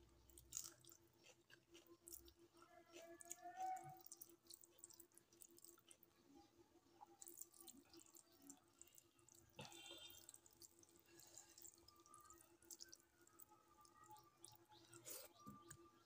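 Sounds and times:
fingers mixing food on metal plate: 0.5s - 6.0s.

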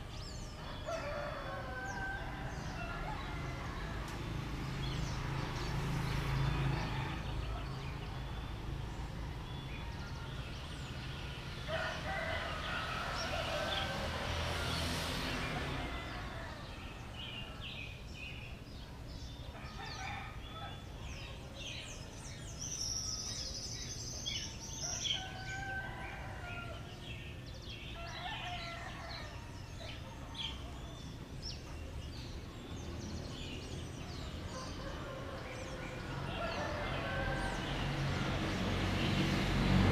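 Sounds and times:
small birds chirping: 0.0s - 38.4s
rooster crowing: 0.2s - 4.2s, 6.3s - 8.1s, 11.6s - 17.8s, 19.5s - 20.9s, 24.8s - 27.2s, 28.0s - 30.6s, 34.1s - 38.3s.

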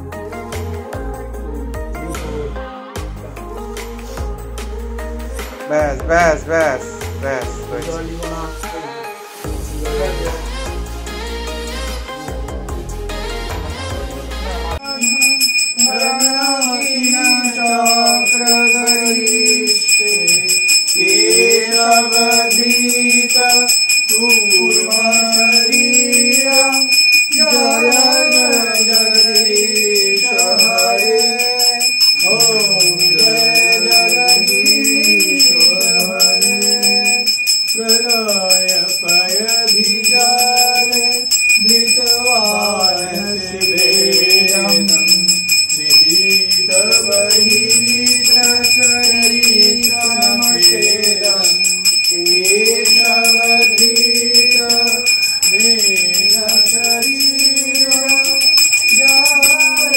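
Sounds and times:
person singing devotional chant: 0.0s - 59.9s
hand bell ringing: 14.8s - 59.9s.

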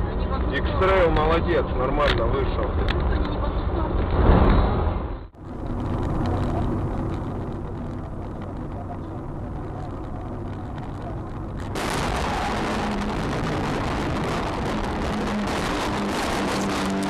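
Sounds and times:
road and engine noise inside car: 0.0s - 17.0s
rushing and scraping noise: 3.9s - 17.0s
car crash: 4.2s - 17.0s
windshield cracking: 5.4s - 17.0s.

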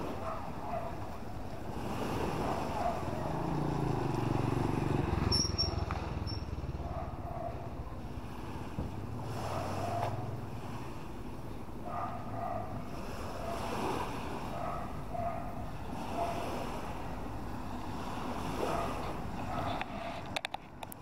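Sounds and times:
vehicle engine passing by: 1.6s - 11.1s.

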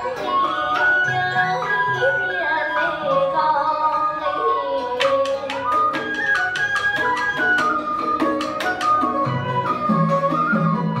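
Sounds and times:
melodic instrument tune: 0.0s - 11.0s
quick even percussion beat: 5.3s - 11.0s.

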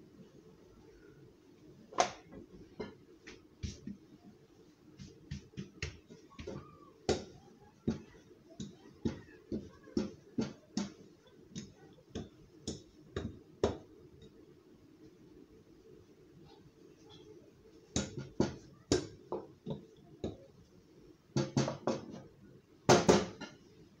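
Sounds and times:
hands slapping dough: 2.0s - 4.1s, 4.9s - 13.9s, 17.8s - 20.5s.

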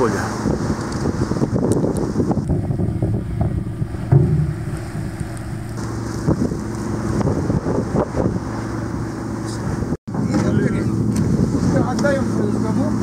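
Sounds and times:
wind buffeting microphone: 0.0s - 9.1s
ship engine humming: 1.2s - 9.9s
heavy thump: 2.5s - 6.9s.

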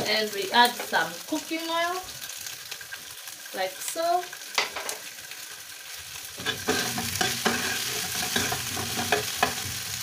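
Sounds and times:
vegetables sizzling in oil: 0.0s - 10.0s
utensil scraping and knocking pan: 6.4s - 9.7s.

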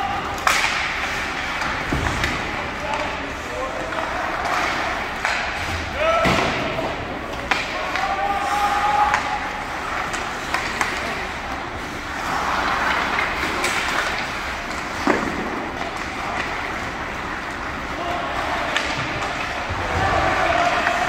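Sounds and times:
crowd voices: 0.0s - 21.0s
hockey sticks and puck clicking: 0.0s - 21.0s
skates scraping on ice: 7.4s - 21.0s.

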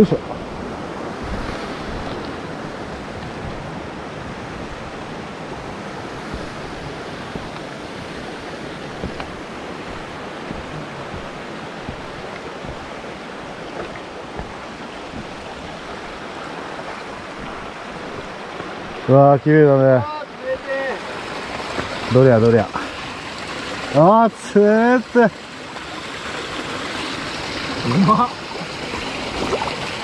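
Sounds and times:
steady rushing noise: 0.0s - 19.6s
faint knocks: 6.2s - 7.7s, 8.8s - 16.2s.

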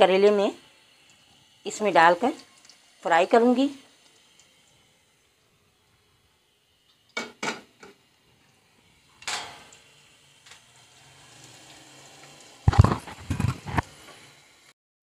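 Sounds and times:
faint oil hiss: 0.0s - 14.7s
spoon knocking and scraping a wok: 7.2s - 8.0s, 12.7s - 13.9s.

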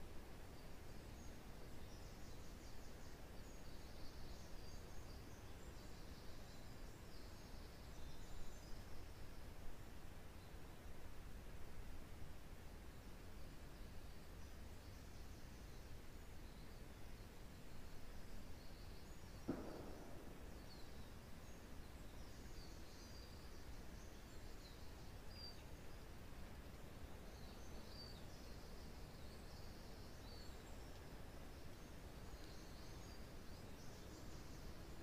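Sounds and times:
small birds chirping: 13.7s - 35.0s
sharp knock: 19.4s - 20.9s.

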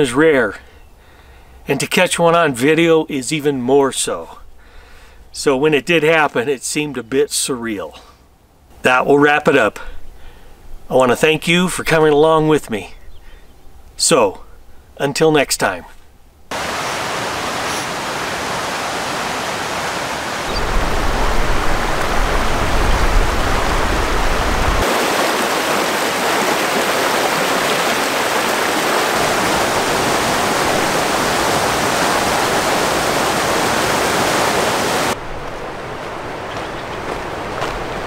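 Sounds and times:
mountain river rushing: 16.5s - 38.0s.

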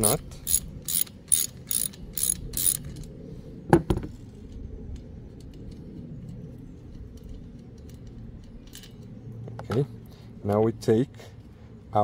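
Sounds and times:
ratchet wrench clicking: 0.0s - 3.1s.

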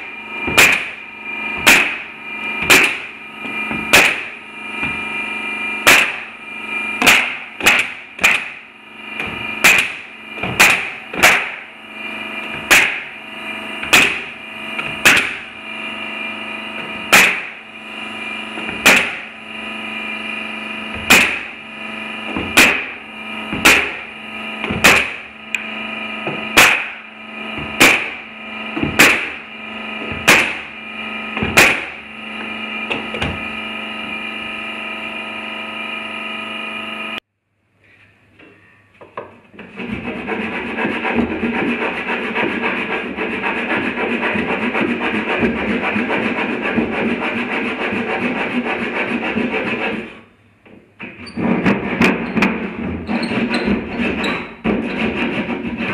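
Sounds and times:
steady hum: 0.0s - 55.9s
nail gun firing into wood: 0.5s - 1.0s, 1.6s - 3.1s, 3.9s - 4.4s, 5.8s - 6.3s, 7.0s - 8.6s, 9.2s - 11.6s, 12.5s - 13.1s, 13.8s - 15.5s, 17.1s - 17.6s, 18.6s - 19.3s, 21.0s - 21.5s, 22.3s - 24.0s, 24.6s - 25.2s, 26.5s - 27.0s, 27.7s - 28.2s, 28.8s - 29.4s, 30.1s - 30.7s, 31.4s - 32.0s.

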